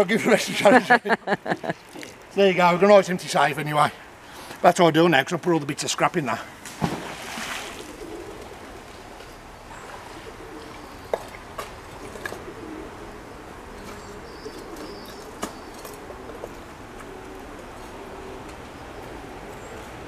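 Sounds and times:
pigeons cooing: 7.6 - 20.0.

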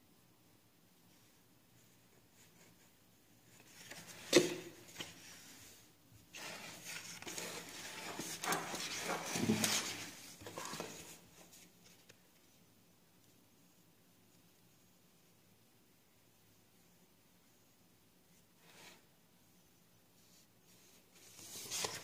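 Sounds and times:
rustling and scraping of paper: 3.5 - 12.6, 20.2 - 22.0.

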